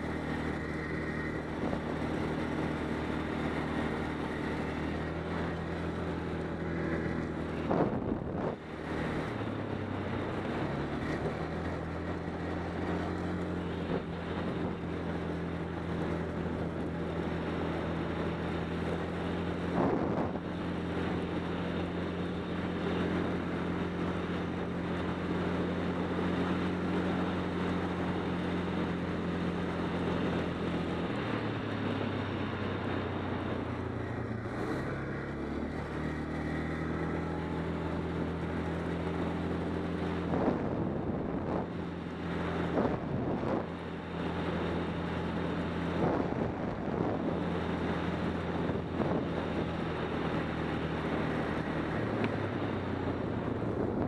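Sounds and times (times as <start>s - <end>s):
atv engine running: 0.0s - 54.0s
wind on microphone: 7.4s - 8.6s, 40.0s - 44.4s.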